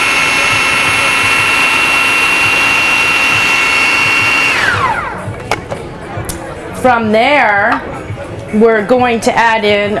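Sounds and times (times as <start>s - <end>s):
food processor motor whining: 0.0s - 5.3s.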